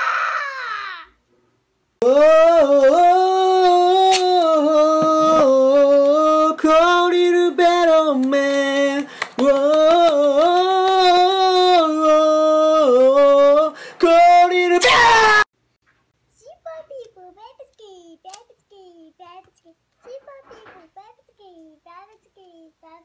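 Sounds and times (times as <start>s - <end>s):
man singing high held notes: 2.0s - 15.5s.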